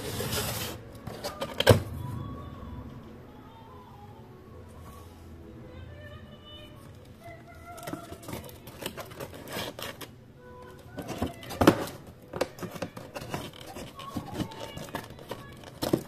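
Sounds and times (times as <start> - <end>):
cardboard rustling and scraping: 0.0 - 1.9, 7.7 - 10.1, 10.7 - 16.0.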